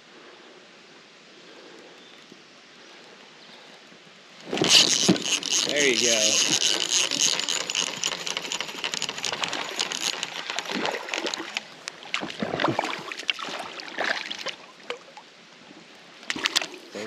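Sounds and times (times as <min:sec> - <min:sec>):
fish thrashing and splashing in water: 0:04.4 - 0:14.6.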